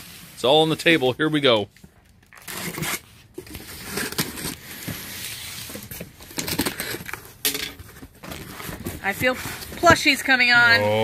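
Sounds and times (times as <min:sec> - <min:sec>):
box cutter slitting tape: 0:02.4 - 0:04.8.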